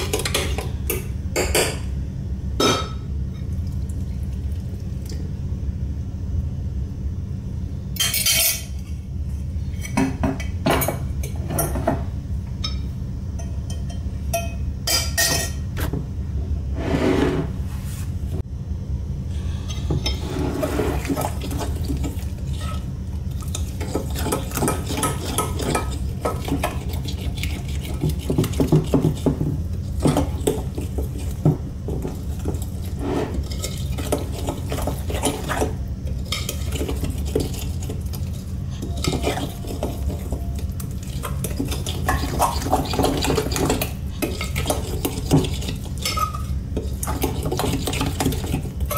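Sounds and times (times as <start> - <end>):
low steady hum: 0.0 - 48.9
spoon clinking against glass bowl: 12.6 - 15.6.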